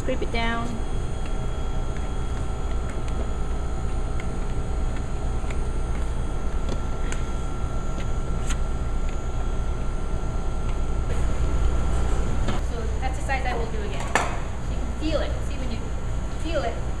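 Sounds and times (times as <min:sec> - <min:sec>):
mixer machine hum: 0:00.0 - 0:17.0.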